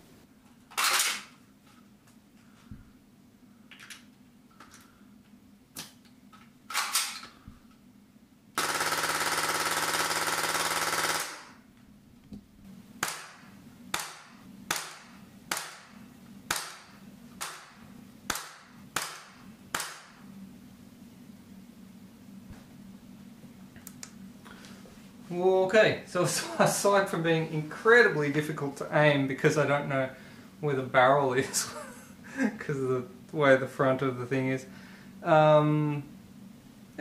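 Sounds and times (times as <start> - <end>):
gel blaster full-auto burst: 8.6 - 11.6, 13.0 - 15.9.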